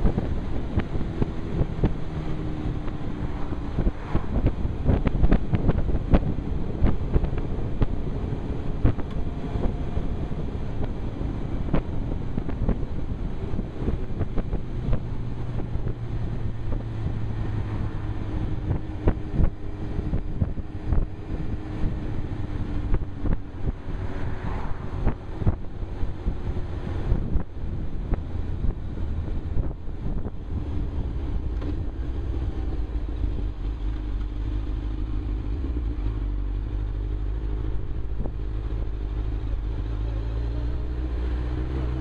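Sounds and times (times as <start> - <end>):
motorcycle engine: 0.0 - 42.0
wind buffeting microphone: 0.0 - 42.0.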